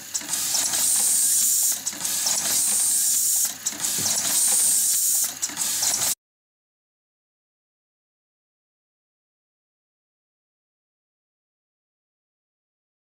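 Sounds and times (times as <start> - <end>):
compressed air hissing: 0.0 - 6.2
machine clicking: 0.0 - 6.2.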